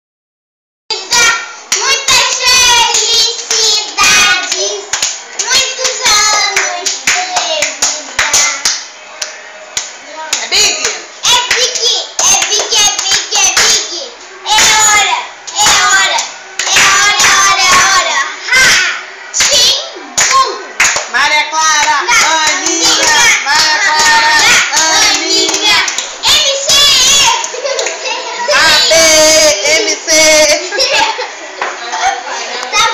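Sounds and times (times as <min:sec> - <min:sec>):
girls singing: 0:00.9 - 0:09.3, 0:10.7 - 0:32.9
girls clapping hands: 0:04.4 - 0:13.9, 0:15.4 - 0:17.9, 0:20.2 - 0:21.1, 0:21.8 - 0:26.5, 0:27.2 - 0:28.1.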